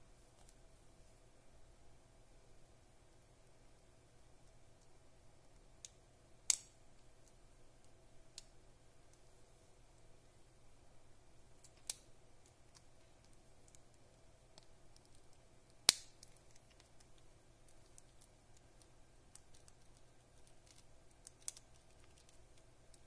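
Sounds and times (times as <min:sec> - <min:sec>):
plastic toy parts clicking: 0:15.0 - 0:23.0.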